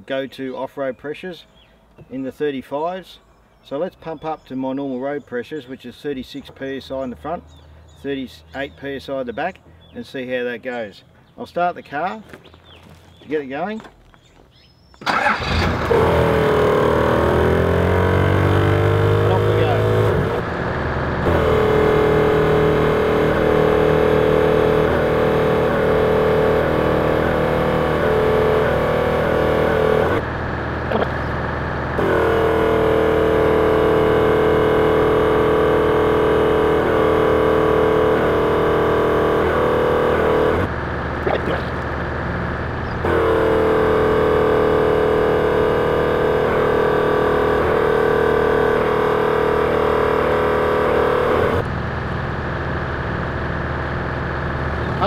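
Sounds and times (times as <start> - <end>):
vehicle engine idling: 15.0 - 34.0, 34.6 - 46.7, 51.3 - 55.0
air compressor running: 39.9 - 46.3.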